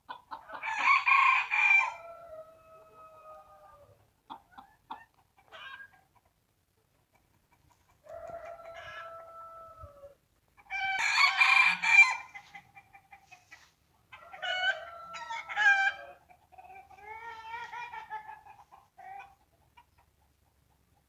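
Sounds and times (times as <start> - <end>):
roosters crowing: 0.4 - 4.0, 8.0 - 12.6, 14.1 - 18.2.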